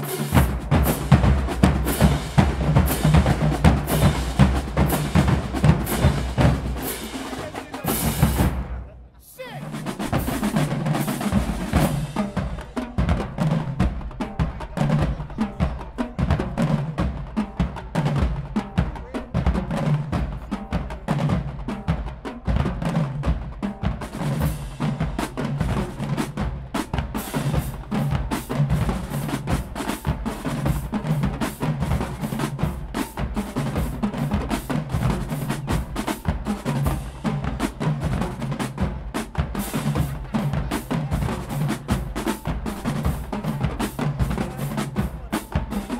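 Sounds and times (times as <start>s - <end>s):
drumline playing fast cadence: 0.0s - 45.9s.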